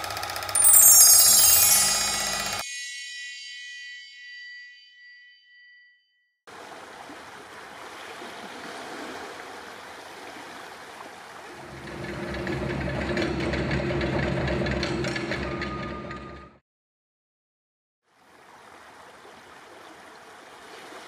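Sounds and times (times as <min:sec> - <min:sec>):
rushing water: 0:06.5 - 0:11.7, 0:18.1 - 0:21.0.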